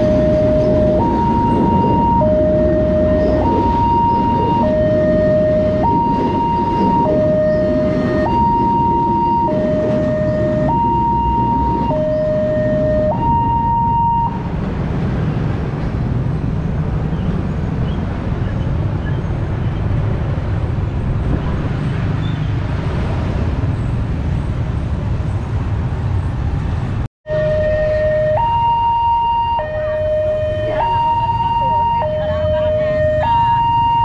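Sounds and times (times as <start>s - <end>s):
level crossing alarm two-tone: 0.0s - 14.4s, 27.3s - 34.0s.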